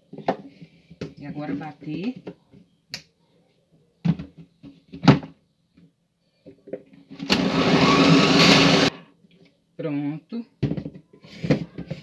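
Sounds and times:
blender motor grinding: 7.2s - 8.9s.

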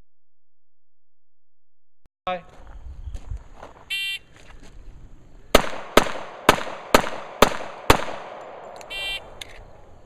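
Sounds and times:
pistol shots: 5.5s - 9.3s.

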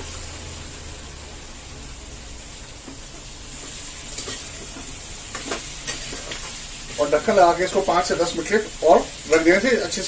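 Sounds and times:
vegetables sizzling in oil: 0.0s - 10.0s
spatula scraping pan: 3.5s - 8.6s.

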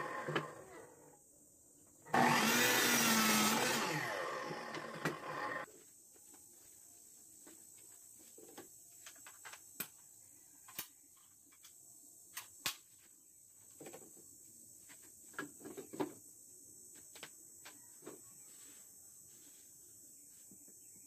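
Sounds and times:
tools and wood clicking and knocking: 8.4s - 10.0s.

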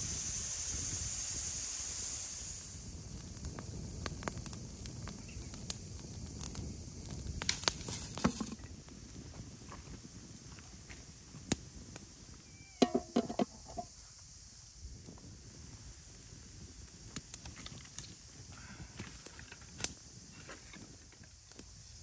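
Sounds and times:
wood fire crackling and popping: 2.6s - 13.9s, 14.9s - 21.8s
knocks: 12.8s - 13.9s
pot lid clinking: 12.8s - 13.9s.

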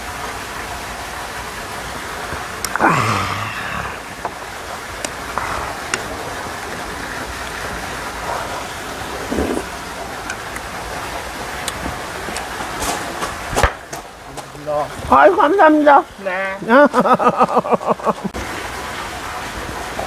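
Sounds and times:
steady rain falling: 0.0s - 20.0s
brief falling vocal sound: 2.7s - 4.2s.

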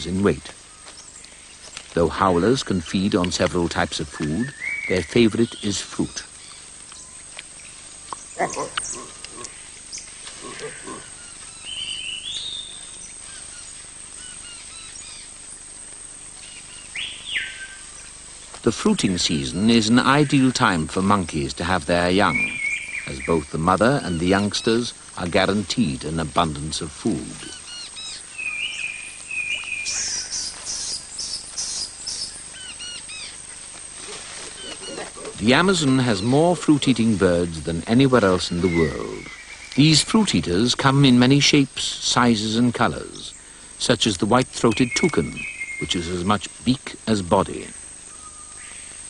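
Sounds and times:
faint bird chirps: 4.0s - 15.7s, 22.1s - 25.0s, 27.3s - 40.7s, 44.6s - 46.4s, 48.0s - 49.0s
bird whistled calls: 4.2s - 5.7s, 27.5s - 33.3s, 44.8s - 46.0s, 48.1s - 48.9s.

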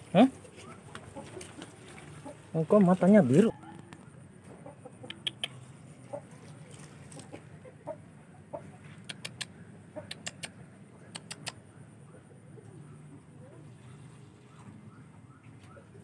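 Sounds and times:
chickens clucking: 0.0s - 14.9s
quick sharp clicks: 9.0s - 11.6s.

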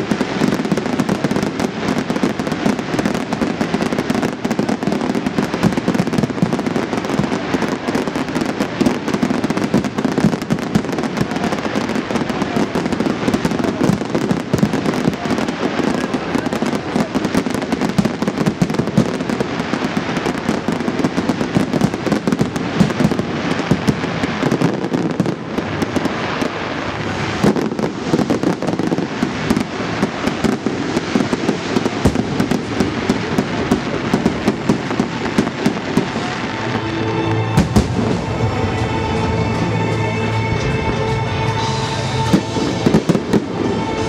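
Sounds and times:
fireworks bangs and crackles: 0.0s - 44.0s.

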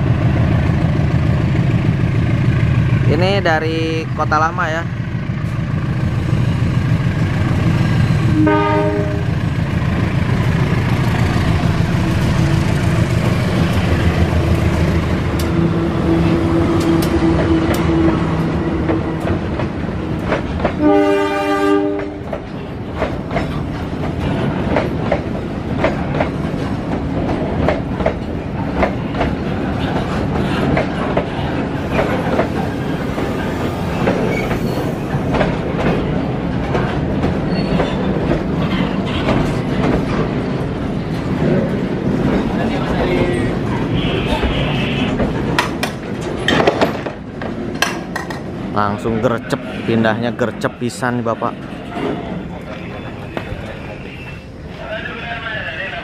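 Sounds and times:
diesel locomotive engine running: 0.0s - 50.8s
train wheels clacking on rail joints: 6.8s - 48.7s
locomotive horn blasts: 8.3s - 9.3s, 20.8s - 22.2s.

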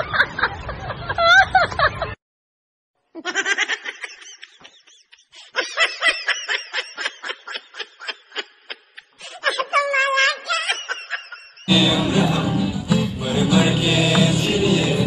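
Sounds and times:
high-pitched giggling: 3.2s - 11.7s.

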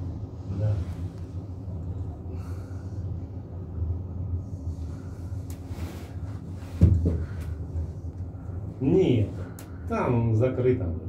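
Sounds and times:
low rumble inside gondola cabin: 0.0s - 11.0s.

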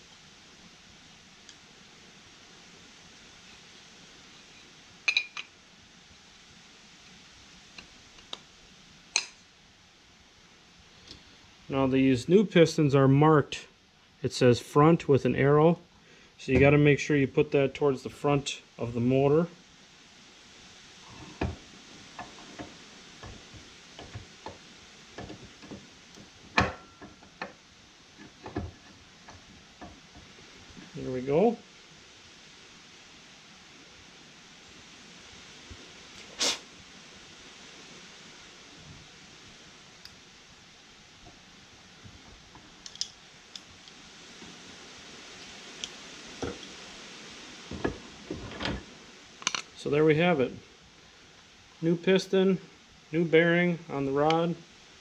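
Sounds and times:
steady hiss: 0.0s - 55.0s
metallic clink with ring: 5.1s - 5.5s
small metal clicks and taps: 42.8s - 44.0s.

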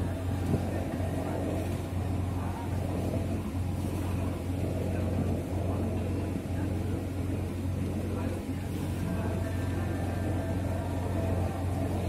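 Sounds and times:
boat engine drone: 0.0s - 12.0s.

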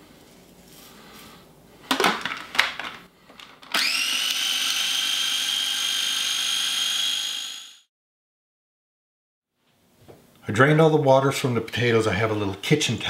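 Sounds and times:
food processor motor whine: 3.7s - 7.9s.

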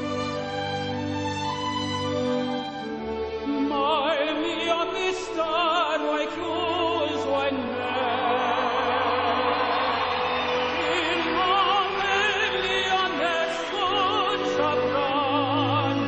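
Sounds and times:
orchestral backing music: 0.0s - 16.0s
male tenor singing: 3.4s - 16.0s.

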